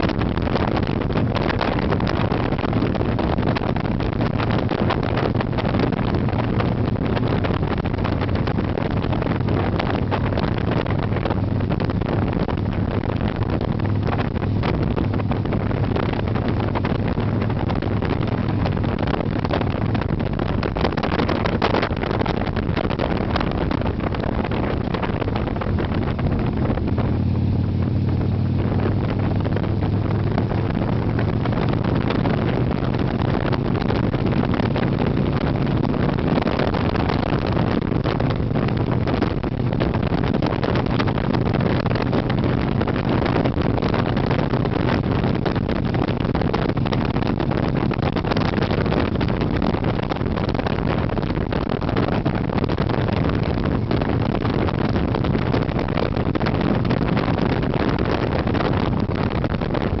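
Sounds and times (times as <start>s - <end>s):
motorcycle engine cruising: 0.0s - 60.0s
wind noise on microphone: 0.0s - 60.0s.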